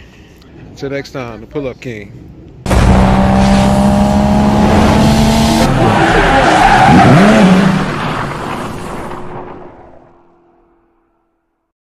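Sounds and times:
race car engine revving high: 2.7s - 8.4s.

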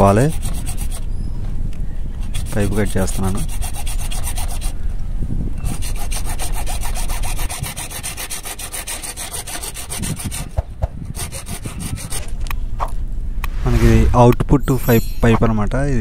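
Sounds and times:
hacksaw cutting pipe: 5.6s - 12.3s.

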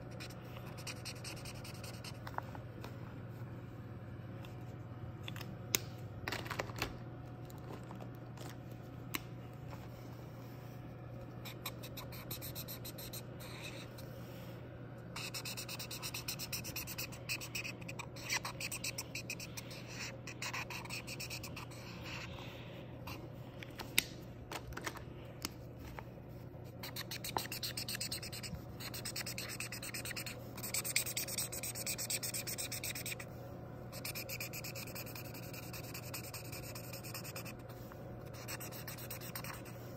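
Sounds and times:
marker scribbling on paper: 0.0s - 2.2s, 11.4s - 14.0s, 15.2s - 22.3s, 26.8s - 33.3s, 34.0s - 39.9s
steady low hum: 0.0s - 39.9s.

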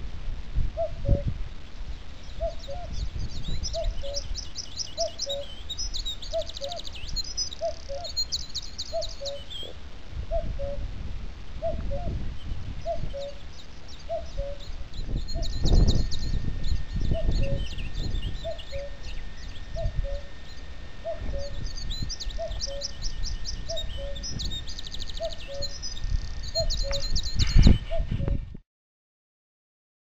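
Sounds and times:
wind rumbling on microphone: 0.0s - 28.6s
cuckoo calling: 0.8s - 1.3s, 2.2s - 10.9s, 11.6s - 28.4s
small birds singing: 0.8s - 11.0s, 11.6s - 28.6s.

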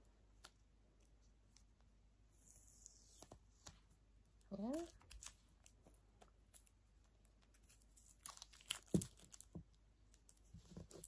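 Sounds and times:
packaging crinkling and tearing: 7.4s - 11.0s.

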